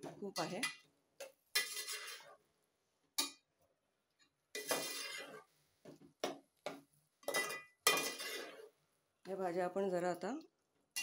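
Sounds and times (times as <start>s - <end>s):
metal spoon scraping a pot: 1.5s - 2.4s, 4.5s - 5.5s, 7.2s - 8.8s.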